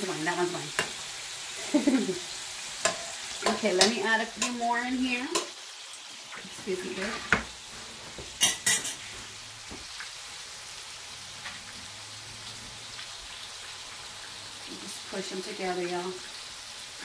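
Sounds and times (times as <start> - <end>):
patties sizzling in a pan: 0.0 - 17.0
utensils clacking: 8.4 - 9.0.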